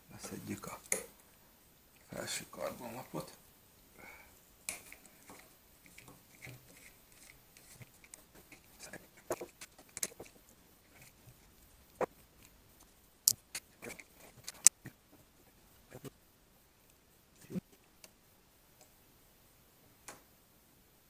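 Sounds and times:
small clicks taps and scrapes: 0.6s - 1.2s, 4.7s - 15.3s
sharp clicks: 12.8s - 14.8s.

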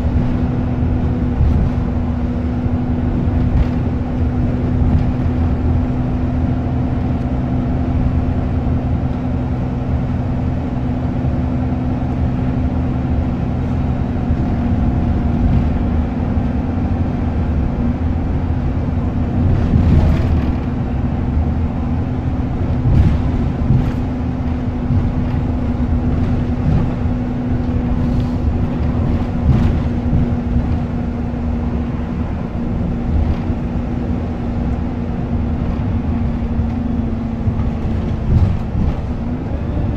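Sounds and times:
bus engine hum: 0.0s - 39.9s
road noise: 0.0s - 39.9s.

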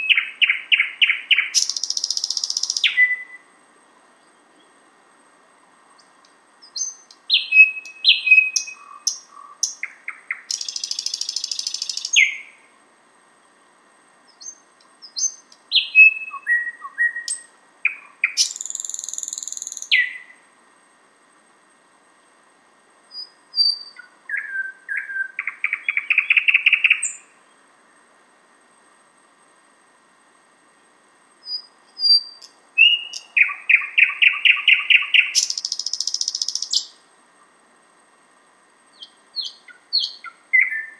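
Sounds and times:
bird singing: 0.0s - 3.5s, 6.0s - 12.7s, 14.3s - 20.4s, 23.1s - 27.6s, 31.4s - 37.0s, 38.9s - 40.9s.

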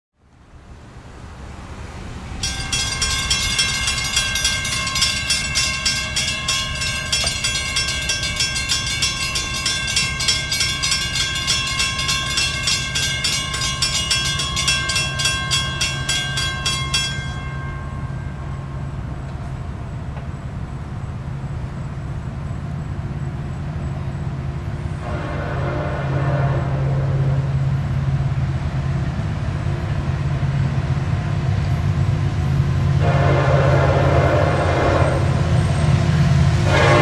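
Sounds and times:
crossing warning bells ringing: 2.1s - 37.0s.

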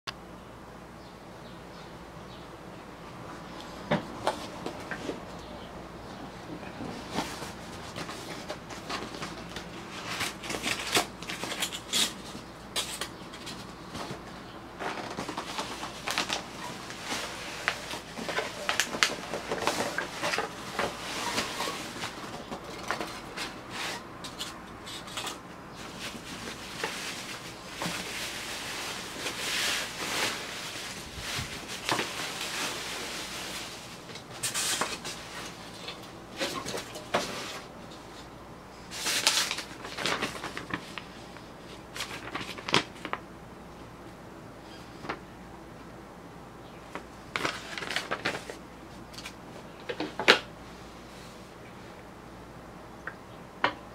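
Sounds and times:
bubble wrap crinkling: 6.9s - 24.0s, 24.9s - 37.7s, 38.8s - 41.2s, 41.8s - 43.2s, 47.3s - 48.6s
paper sheet rustling: 6.9s - 43.2s, 47.0s - 50.3s.

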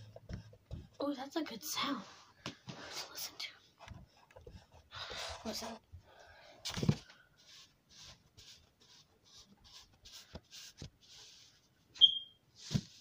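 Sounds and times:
putty high squeak: 12.0s - 12.4s.

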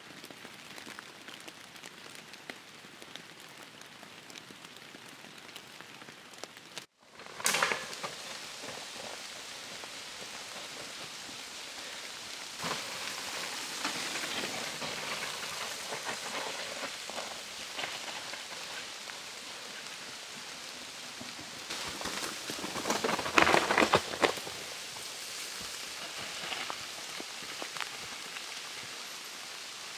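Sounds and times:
bike tyres rolling through mud: 0.0s - 29.9s
steady hiss: 6.6s - 29.9s.

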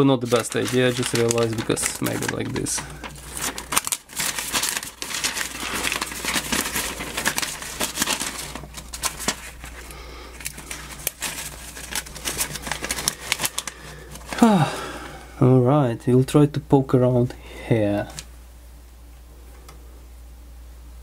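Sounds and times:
paper crinkling and rustling: 0.0s - 15.0s, 17.8s - 18.3s.

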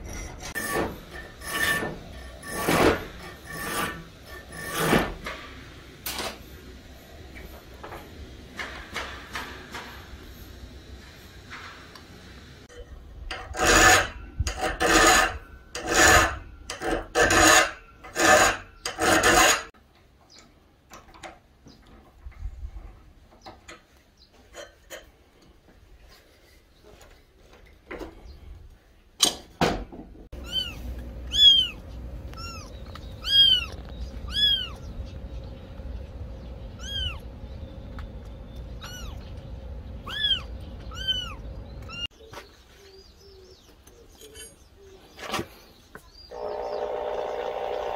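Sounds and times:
file rasping on steel blade: 0.0s - 5.2s, 13.3s - 19.7s
kitten mewing: 30.4s - 31.8s, 32.4s - 34.8s.

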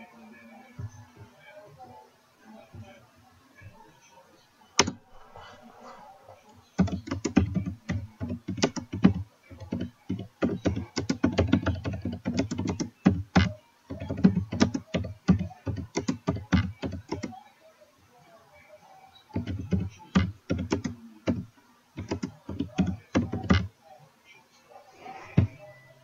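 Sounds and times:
typing on computer keyboard: 6.8s - 17.4s, 19.3s - 23.7s.

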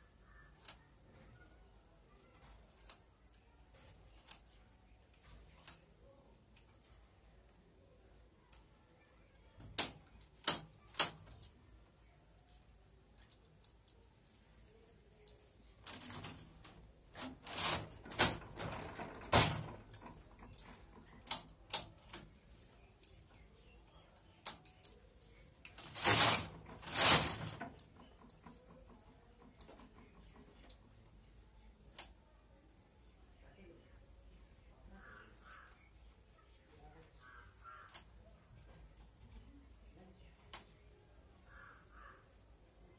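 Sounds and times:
metal needles clicking: 0.3s - 1.0s, 2.3s - 7.6s, 8.4s - 11.8s, 12.4s - 32.3s, 37.2s - 39.6s, 40.2s - 40.9s
knitting carriage clattering: 13.2s - 31.4s.

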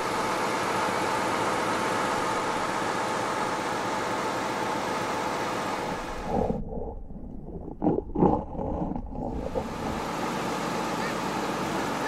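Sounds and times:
crane engine running: 0.0s - 6.7s, 9.3s - 12.0s.

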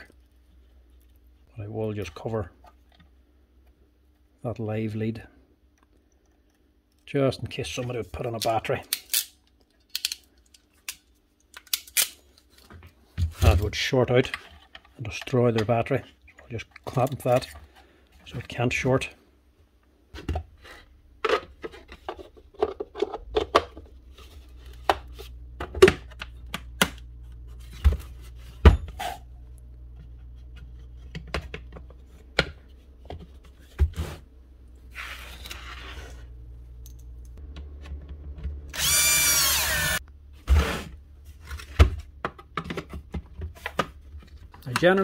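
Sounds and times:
plastic parts clicking and knocking: 8.4s - 13.6s, 21.2s - 24.0s, 41.5s - 45.0s
power driver motor whirring: 38.7s - 40.0s.

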